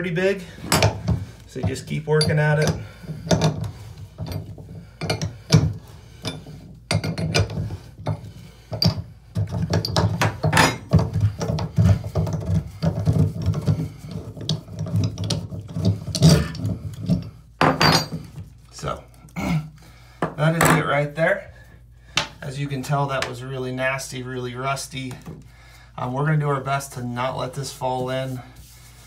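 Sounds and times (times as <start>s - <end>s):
tool clinking: 0.6s - 9.0s.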